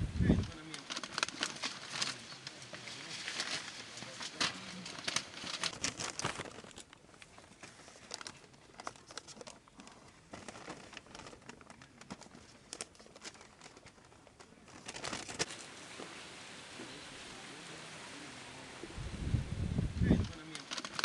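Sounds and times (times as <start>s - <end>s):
paper rustling and crinkling: 0.3s - 16.2s, 20.1s - 21.0s.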